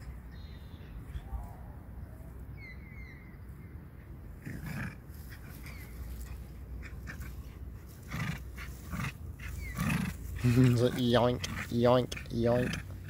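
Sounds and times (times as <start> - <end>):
small dog growling and huffing: 4.4 - 6.4, 7.0 - 13.0.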